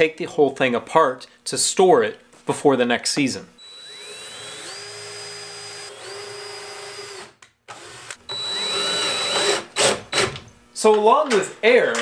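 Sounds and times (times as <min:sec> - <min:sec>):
drill driving screws: 0:03.6 - 0:10.4
drill motor whining: 0:03.6 - 0:10.4.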